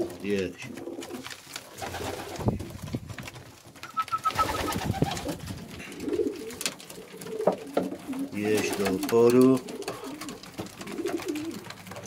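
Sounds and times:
pigeons cooing: 0.0 - 2.7, 3.8 - 12.0
beaks tapping on grain and wood: 5.1 - 12.0.

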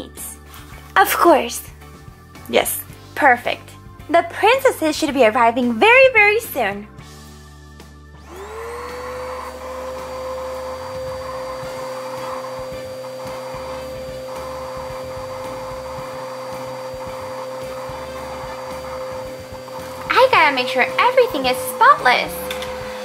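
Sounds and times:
vacuum cleaner motor whining: 8.2 - 23.0.

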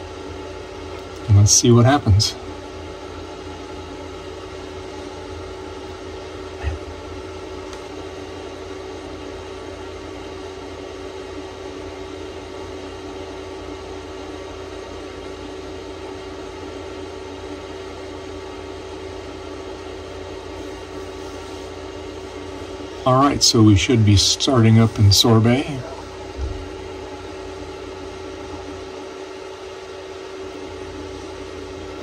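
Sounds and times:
steady machine hum: 0.0 - 32.0
short thump: 26.4 - 26.7.

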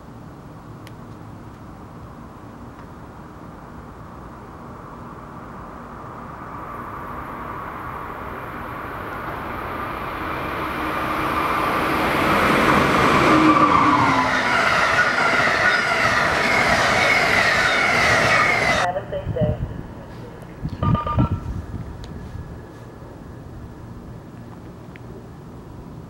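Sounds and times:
electric locomotive passing: 1.8 - 26.0
train wheels on rails: 6.7 - 18.9.

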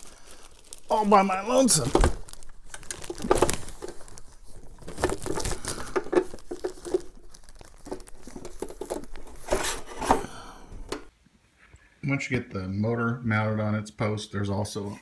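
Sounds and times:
plastic wrapping crinkling: 0.0 - 11.1.

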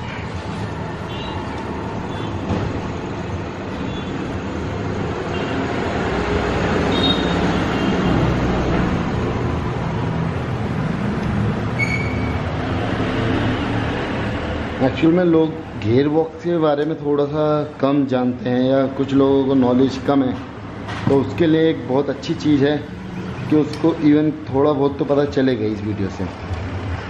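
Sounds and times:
high squeaks: 11.7 - 12.5.

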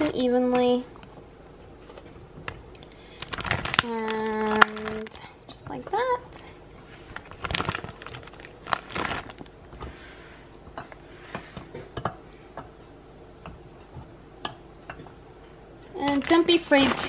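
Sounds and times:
soft handling rustles: 1.6 - 6.0.

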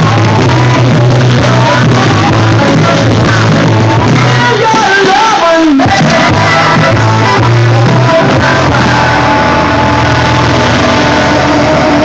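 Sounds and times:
steady bass line: 0.0 - 5.0, 5.8 - 12.0
person singing: 0.0 - 12.0.

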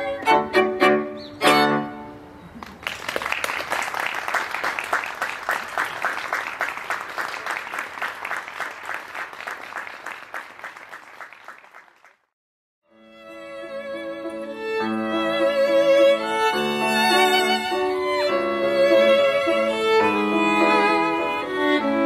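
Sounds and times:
violins and piano chord: 0.0 - 2.3, 12.9 - 22.0
audience applause: 2.6 - 12.3.

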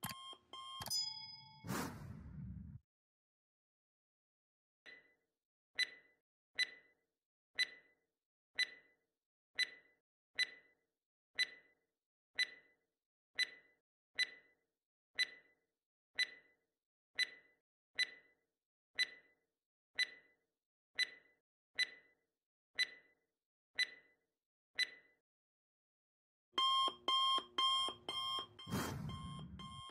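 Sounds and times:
timer ticking: 5.8 - 6.8, 7.6 - 7.9, 8.6 - 8.9, 9.6 - 10.6, 11.4 - 11.6, 12.4 - 12.7, 13.4 - 14.4, 19.0 - 19.2, 20.0 - 20.2, 26.6 - 29.9.

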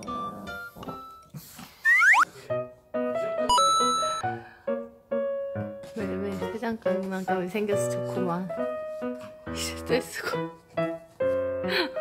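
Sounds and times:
light background music: 0.0 - 12.0
cartoon whistling glide: 1.8 - 2.3.

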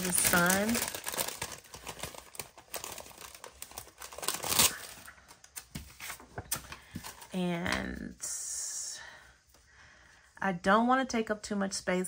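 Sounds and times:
sticker sheet crinkling: 0.0 - 7.3.

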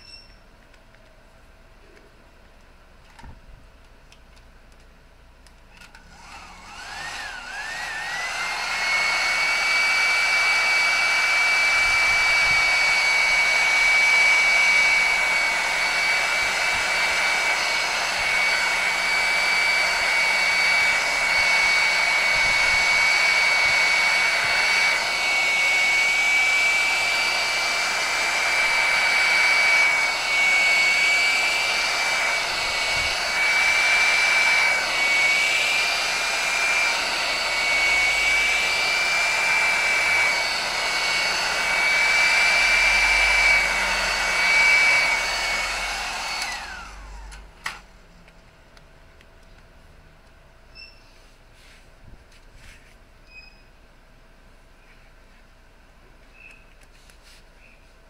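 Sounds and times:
hot-air blower fan whine: 5.8 - 48.2.

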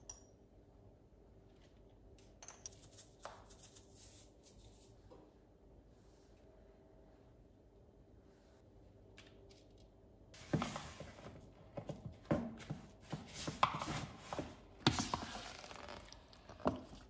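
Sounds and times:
utensil scraping a plastic bowl: 13.4 - 17.0.

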